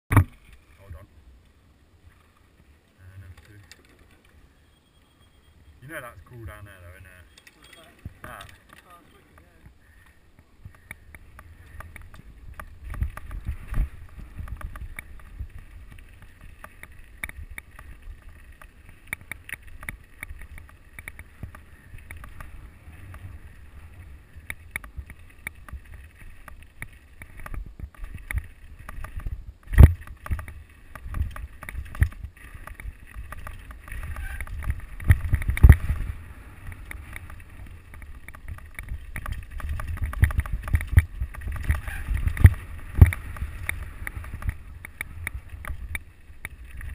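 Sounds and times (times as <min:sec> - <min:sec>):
bike rattling over stones: 0:00.1 - 0:46.9
bike tyres rumbling on gravel: 0:05.4 - 0:46.9
wind on microphone: 0:10.6 - 0:18.5, 0:27.2 - 0:46.9.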